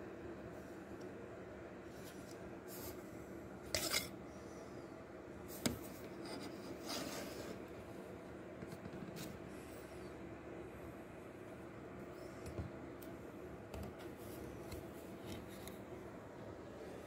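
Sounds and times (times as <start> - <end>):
faint steady hum: 0.0 - 17.0
soft rubbing of handling: 1.8 - 3.1, 5.5 - 7.8
knife scraping from sheath: 3.7 - 4.1.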